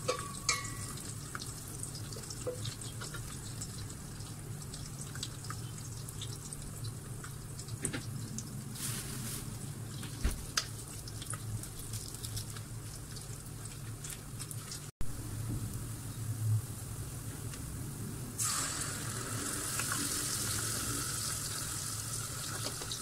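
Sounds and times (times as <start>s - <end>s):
onions frying in oil: 0.0s - 23.0s
crackles and pops: 10.0s - 14.9s.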